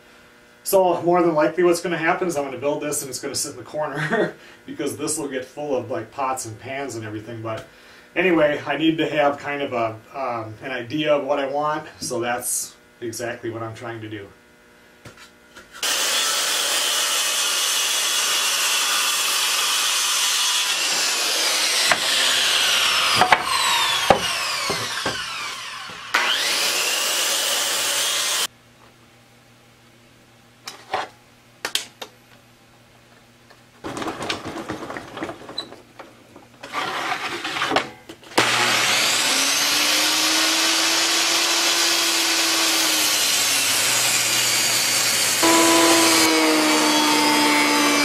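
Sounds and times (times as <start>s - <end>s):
circular saw cutting wood: 15.8s - 28.5s, 36.7s - 37.8s, 38.4s - 48.0s
board scraping across table: 36.6s - 37.9s.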